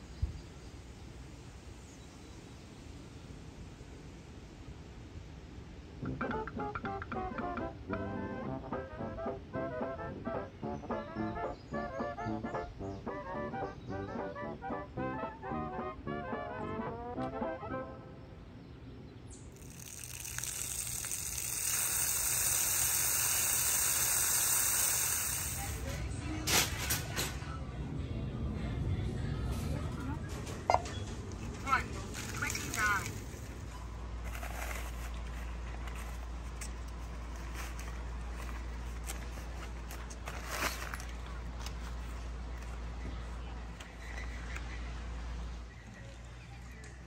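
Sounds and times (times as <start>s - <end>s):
water gushing from a spigot: 19.6s - 25.9s
steady low rumble: 27.4s - 43.8s
nylon bag rustling: 31.6s - 42.2s.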